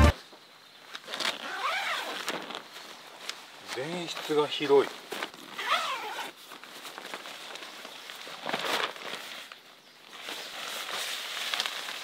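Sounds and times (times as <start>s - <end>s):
tent fabric rustling and swishing: 0.0s - 12.0s.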